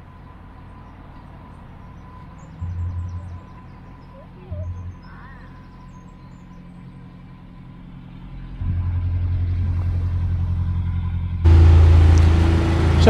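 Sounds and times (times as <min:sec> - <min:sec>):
diesel engine chugging: 0:00.0 - 0:13.0.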